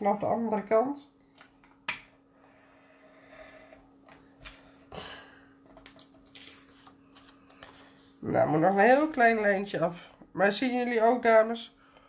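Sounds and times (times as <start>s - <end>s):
steady low hum: 0.0s - 12.0s
scratchy paper rustle: 5.8s - 8.2s.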